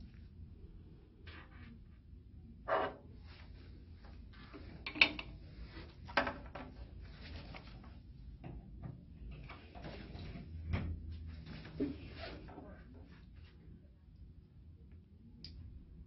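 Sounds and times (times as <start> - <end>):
light rustling and shuffling: 3.2 - 13.8.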